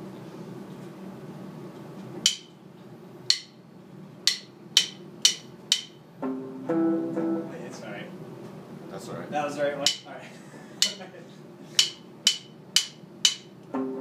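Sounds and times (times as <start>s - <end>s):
sharp percussive clicks: 2.2s - 2.5s, 3.3s - 3.6s, 4.2s - 6.0s, 9.8s - 10.1s, 11.8s - 13.5s.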